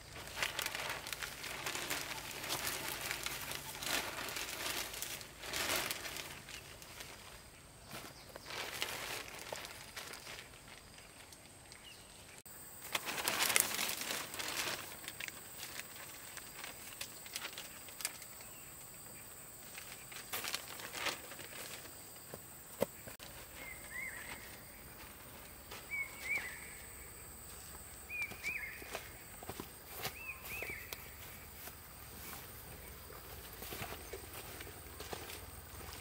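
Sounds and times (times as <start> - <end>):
dry material rustling and crackling: 0.0 - 11.7, 12.7 - 36.0.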